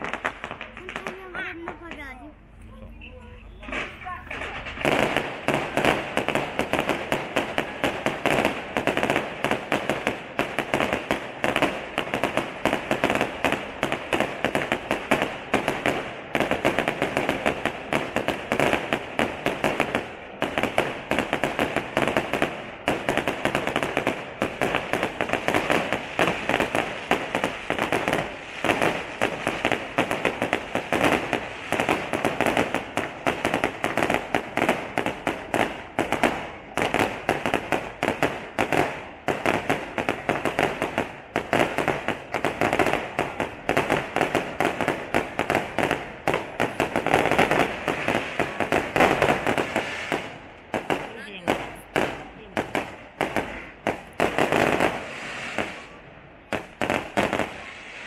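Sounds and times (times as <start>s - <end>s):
fireworks bangs and crackles: 0.0s - 58.0s.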